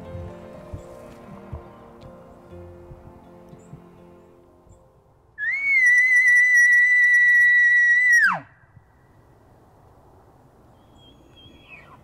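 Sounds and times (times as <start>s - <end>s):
elk call whistle: 5.4s - 8.6s.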